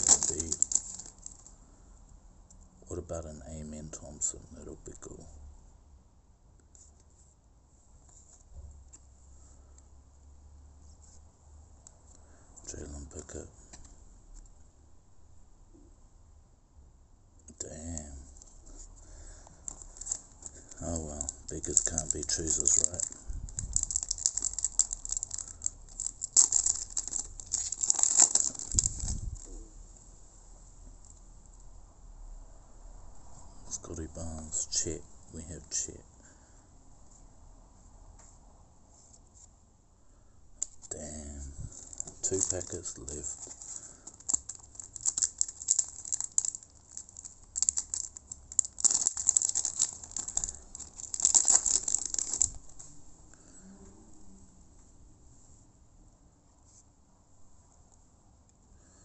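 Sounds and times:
foil wrapper crinkling: 0.0 - 1.6, 18.4 - 29.6, 41.6 - 52.8.

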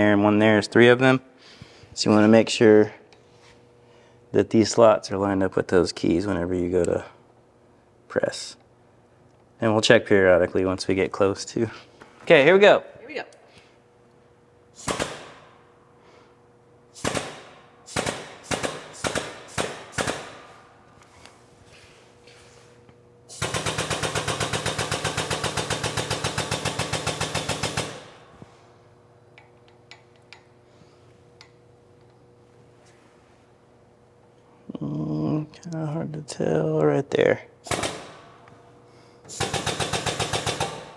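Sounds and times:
shop press sharp clacks: 14.8 - 15.6, 17.0 - 20.5, 37.7 - 38.3, 39.3 - 40.9.

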